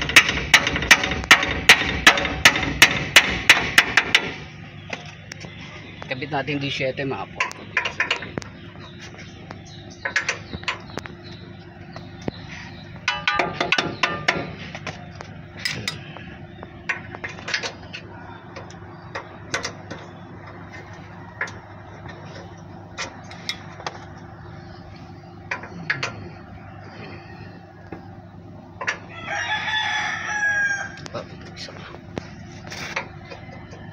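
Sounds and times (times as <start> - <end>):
steady low hum: 0.0 - 33.9
rooster crowing: 29.0 - 31.2, 33.1 - 33.9.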